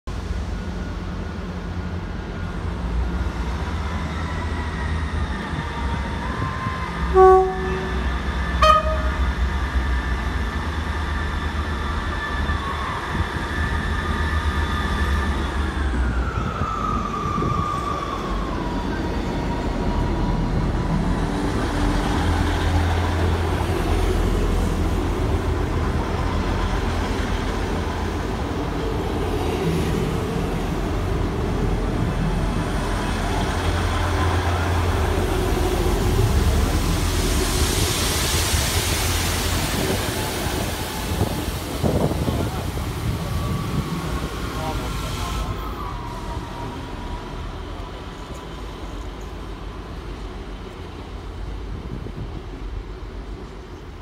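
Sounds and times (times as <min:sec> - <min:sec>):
train wheels rumbling: 0:00.1 - 0:54.0
train horn toots: 0:07.0 - 0:09.4.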